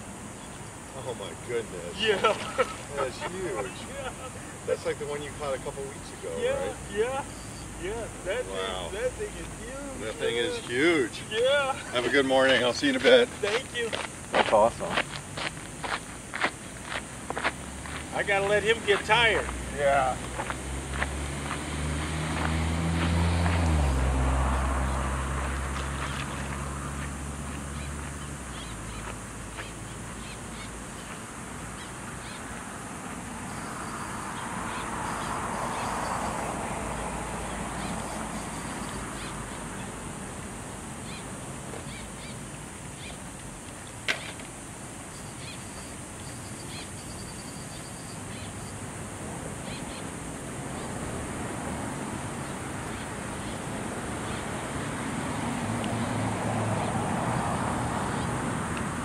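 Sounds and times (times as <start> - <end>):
outdoor background noise: 0.0 - 59.0
faint chirps: 5.9 - 11.1, 45.0 - 48.9.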